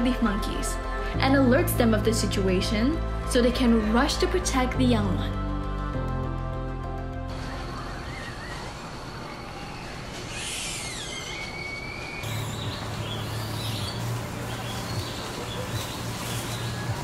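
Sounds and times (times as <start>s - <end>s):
bird whistling: 7.3s - 17.0s.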